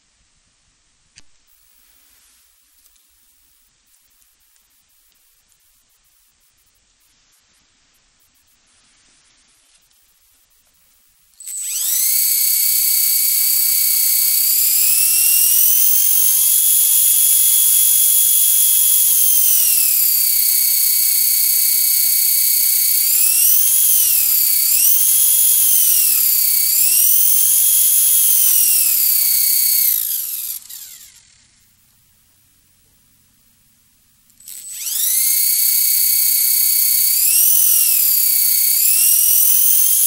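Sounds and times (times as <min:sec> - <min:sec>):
model helicopter motor whine: 0:11.4 - 0:31.8, 0:34.3 - 0:40.0.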